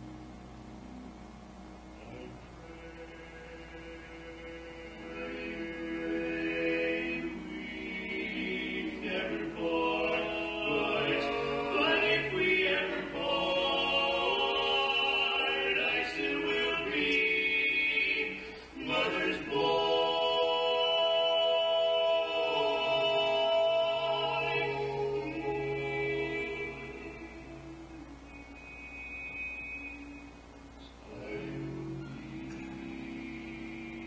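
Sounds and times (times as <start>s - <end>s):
men singing a cappella harmony: 2.6s - 28.3s, 31.0s - 34.0s.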